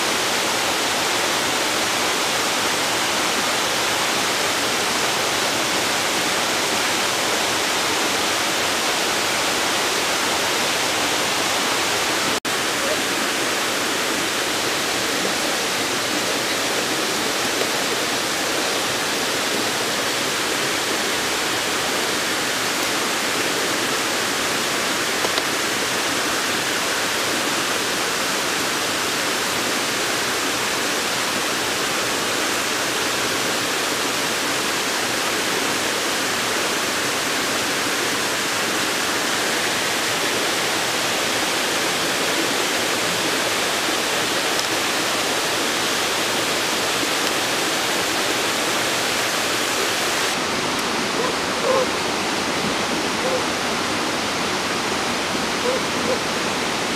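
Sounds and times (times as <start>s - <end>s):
waterfall rushing: 0.0s - 56.9s.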